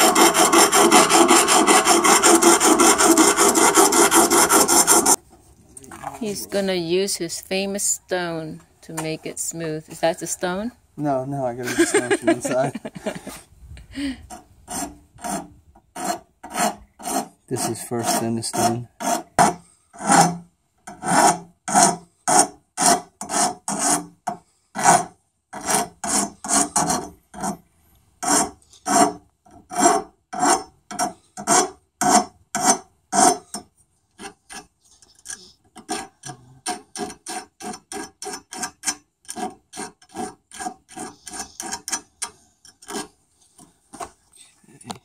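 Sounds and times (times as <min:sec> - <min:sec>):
hand file rasping on steel: 0:00.0 - 0:05.2, 0:14.3 - 0:27.6, 0:28.2 - 0:43.7.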